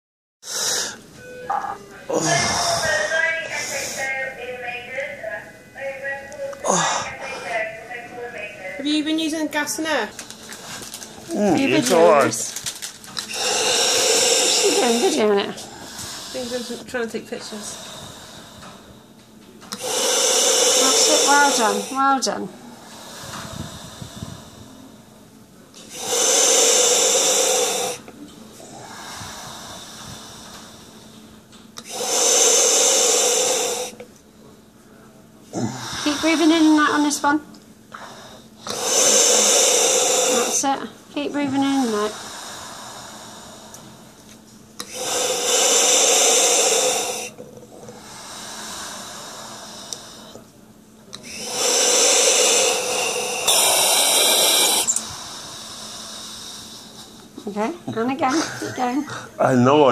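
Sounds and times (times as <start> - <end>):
deep breaths through mouthpiece hissing: 0.4 - 1.0, 2.1 - 4.3, 10.6 - 19.0, 19.7 - 25.1, 25.8 - 31.2, 31.8 - 34.0, 35.6 - 44.2, 44.8 - 50.5, 51.1 - 57.6
soft breathing: 2.1 - 4.4, 12.8 - 19.1, 19.8 - 25.2, 25.8 - 34.0, 37.9 - 44.2, 44.8 - 50.5, 51.1 - 57.4.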